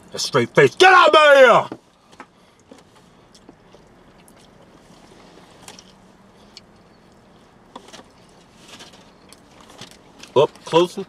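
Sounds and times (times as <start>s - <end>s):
low steady hum: 0.0s - 11.0s
chewing and wet mouth clicks: 3.3s - 4.7s.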